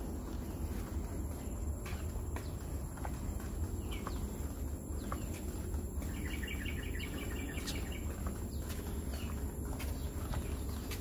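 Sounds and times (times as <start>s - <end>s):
steady low rumble: 0.0s - 11.0s
bird chirping rapidly: 6.1s - 10.9s.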